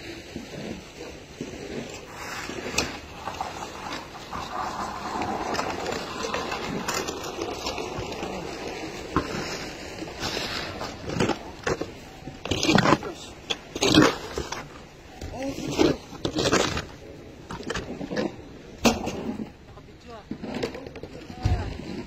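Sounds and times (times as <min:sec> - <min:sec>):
snow shovel scraping snow: 0:00.0 - 0:16.9.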